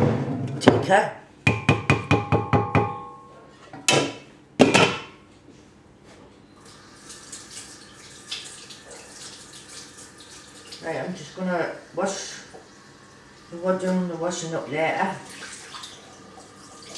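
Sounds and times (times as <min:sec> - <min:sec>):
wooden spoon knocking metal saucepan: 0:01.5 - 0:03.2
kitchen tap running into sink: 0:06.6 - 0:16.9.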